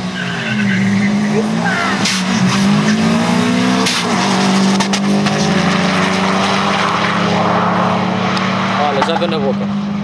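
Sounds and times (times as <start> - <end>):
car engine accelerating hard: 0.0 - 10.0.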